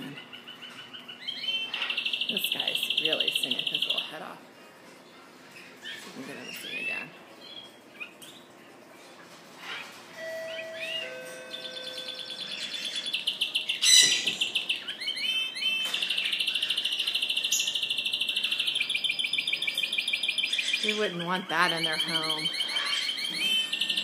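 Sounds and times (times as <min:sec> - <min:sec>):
canary singing trills: 0:00.0 - 0:04.4, 0:05.5 - 0:08.5, 0:09.6 - 0:24.0.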